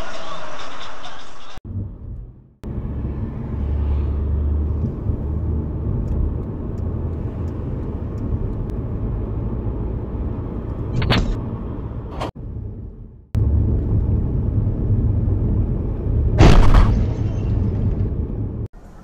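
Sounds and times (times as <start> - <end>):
car road and engine rumble: 1.6 - 19.0
sudden loud crash noise: 16.4 - 17.8.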